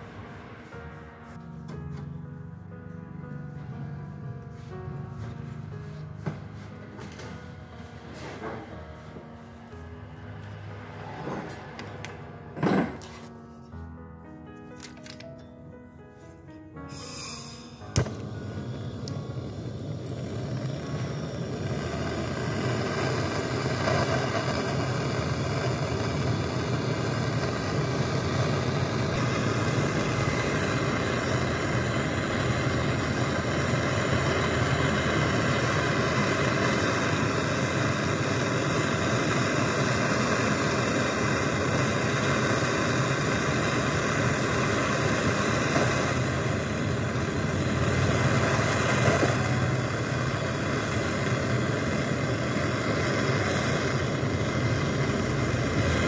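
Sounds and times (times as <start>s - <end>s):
torch flame rushing: 17.0s - 56.0s.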